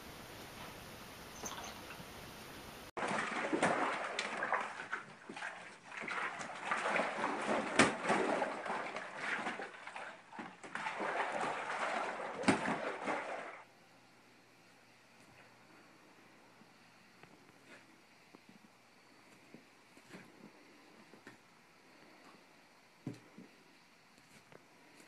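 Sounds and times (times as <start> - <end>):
water sloshing in waterbed: 3.0 - 13.7.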